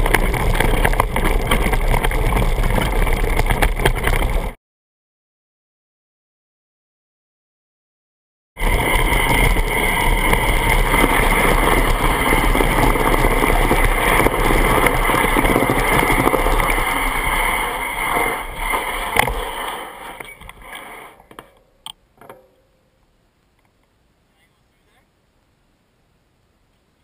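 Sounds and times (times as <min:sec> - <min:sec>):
bike rattling over trail: 0:00.0 - 0:04.6, 0:08.6 - 0:22.7.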